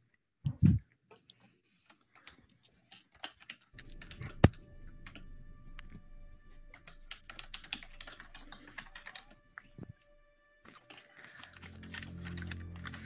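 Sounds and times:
faint background music: 3.7 - 13.0
keyboard clicking and tapping: 6.7 - 9.7.

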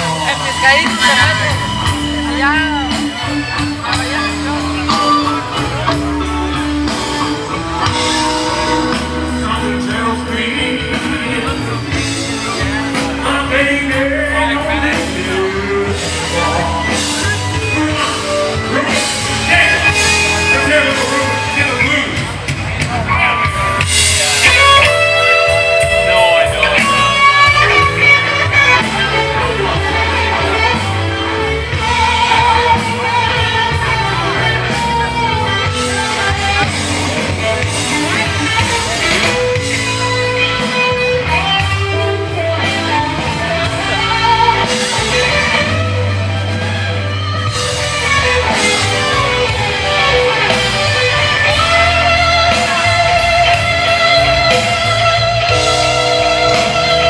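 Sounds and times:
electric guitar: 0.0 - 57.0
rock band playing: 0.0 - 57.0
person singing: 2.7 - 22.0.

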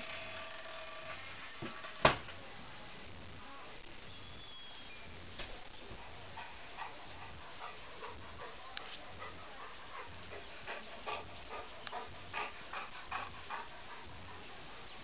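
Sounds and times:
dog panting: 5.7 - 15.0.

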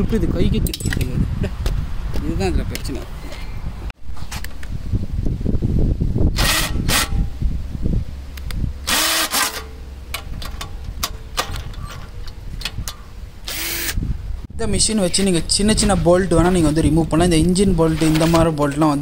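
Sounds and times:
cordless drill motor whirring: 6.4 - 7.2, 8.8 - 9.6, 13.4 - 14.0
handling rumble and knocking: 9.7 - 13.3.

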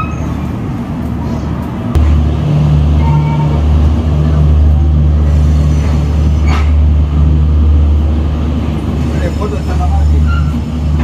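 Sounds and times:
large engine humming: 0.0 - 11.0.

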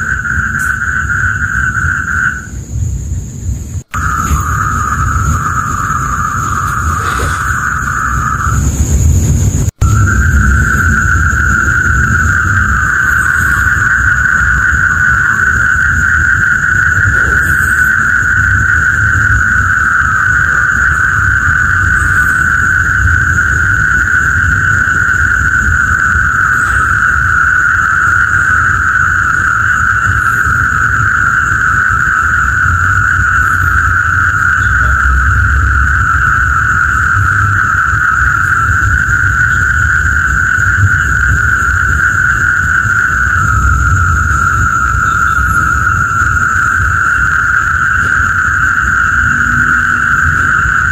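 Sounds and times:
chorus of calling frogs: 0.0 - 2.9, 3.8 - 50.9
low steady rumble: 1.6 - 50.9.

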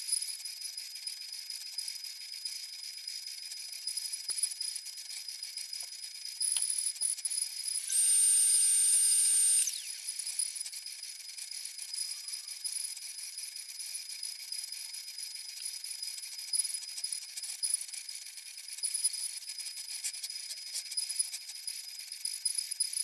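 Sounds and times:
router spindle whining: 7.8 - 10.4.

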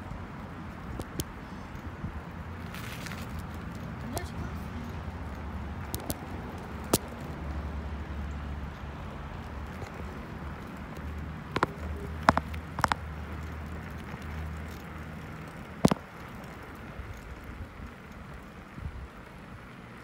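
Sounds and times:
bicycle tyres rumbling on concrete: 0.0 - 20.0
wind: 0.0 - 20.0
bicycle knocks and rattles: 5.7 - 7.4, 8.7 - 17.8.

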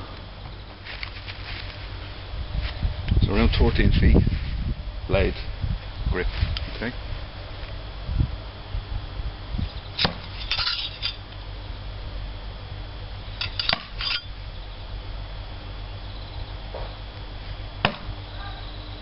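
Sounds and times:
throwing knives clinking: 10.0 - 11.2, 13.4 - 14.3.

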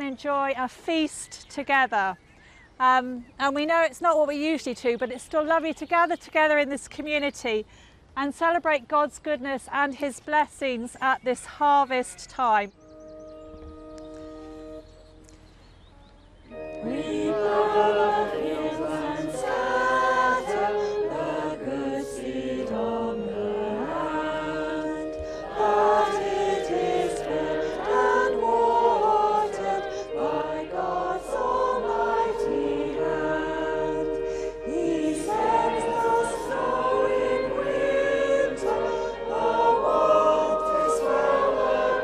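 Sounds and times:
congregation singing a hymn: 16.5 - 42.0.

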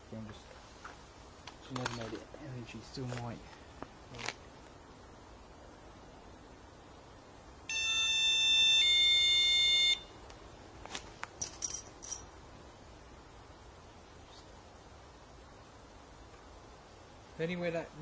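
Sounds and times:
electronic alarm tone: 7.7 - 10.1.

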